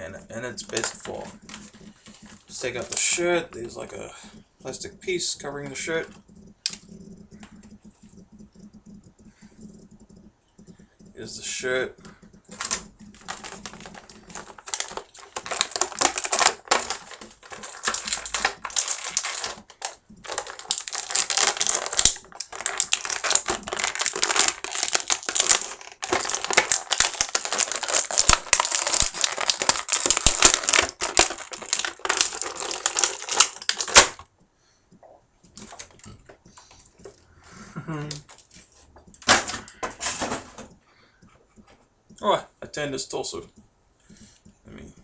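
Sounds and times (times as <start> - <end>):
plastic bag crinkling: 0.0 - 8.8, 11.1 - 34.2.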